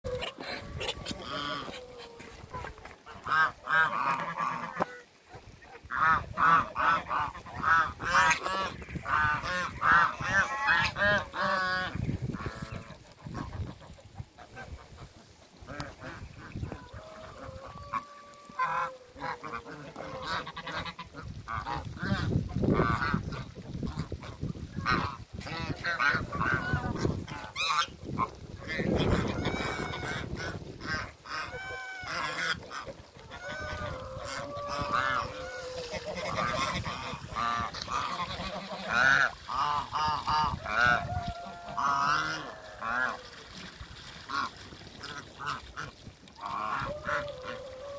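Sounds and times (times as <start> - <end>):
geese honking: 0.1 - 5.2, 5.8 - 43.6, 44.3 - 47.9.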